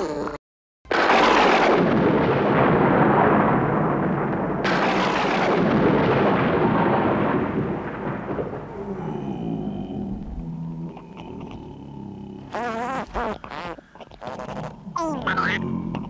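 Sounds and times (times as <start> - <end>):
thunder claps rumbling: 0.9 - 12.5.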